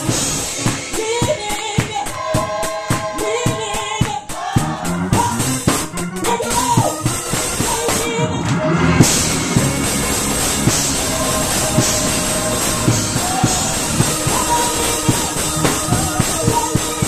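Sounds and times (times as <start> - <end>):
choir singing: 0.0 - 5.6, 7.6 - 17.0
drum kit: 0.0 - 17.0.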